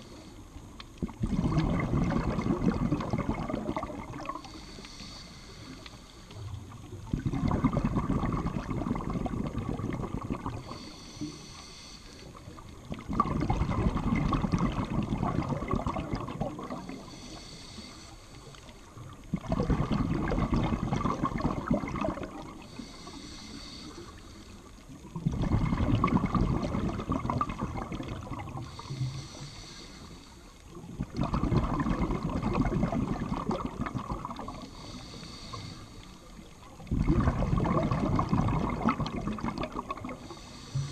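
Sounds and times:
faint regulator hiss: 0.0 - 31.2, 32.1 - 40.9
underwater exhalation bubbling: 1.0 - 4.6, 6.7 - 11.4, 12.8 - 17.3, 19.1 - 23.0, 25.0 - 29.3, 30.7 - 35.7, 36.4 - 40.9.

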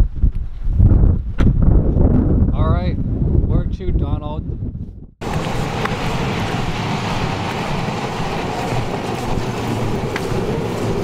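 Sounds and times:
wind: 0.0 - 11.0
passing traffic: 5.2 - 11.0.

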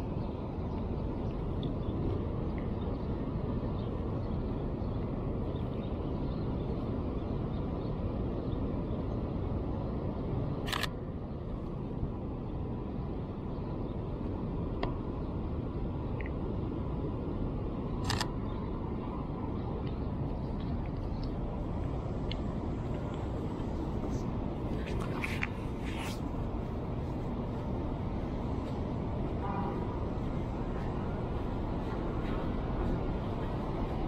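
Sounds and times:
camera shutter clicking: 18.0 - 18.3.

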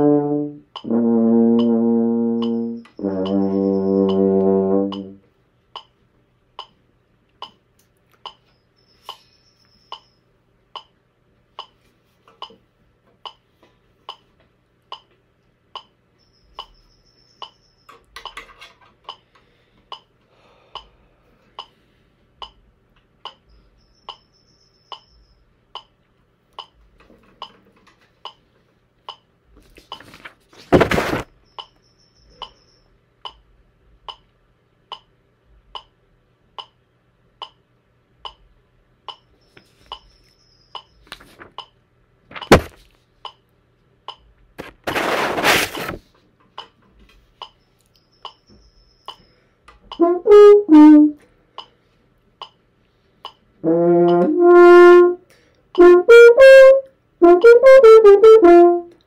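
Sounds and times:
metronome clicking: 0.0 - 11.0, 11.6 - 12.6, 13.2 - 13.5, 14.1 - 14.3, 14.9 - 21.0, 21.6 - 21.8, 22.4 - 29.3, 31.4 - 41.8, 43.2 - 43.5, 44.1 - 44.3, 46.6 - 46.8, 47.4 - 51.8, 52.4 - 52.6, 53.2 - 59.0
handling noise: 30.0 - 31.3.

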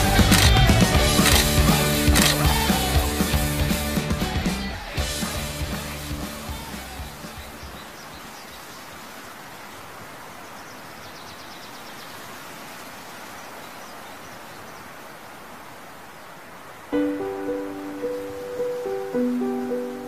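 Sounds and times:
rock music: 0.0 - 7.6
steady outdoor hiss: 0.0 - 20.0
high chirps: 17.0 - 20.0.

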